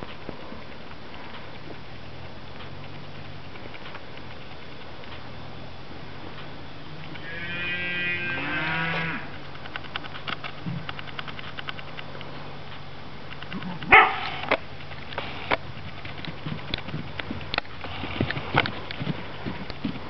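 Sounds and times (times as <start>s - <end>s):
faint light ticks: 0.0s - 5.4s
farm animal calling: 6.8s - 9.4s, 13.4s - 14.6s.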